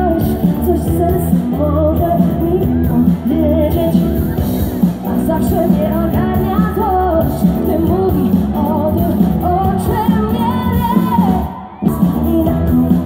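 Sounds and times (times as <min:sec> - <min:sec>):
live pop band: 0:00.0 - 0:13.0
woman singing: 0:00.0 - 0:13.0.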